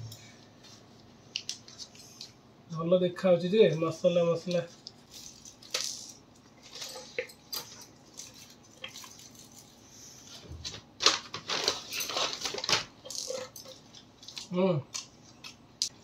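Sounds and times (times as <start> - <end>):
foil wrapper rustling: 11.0 - 12.9.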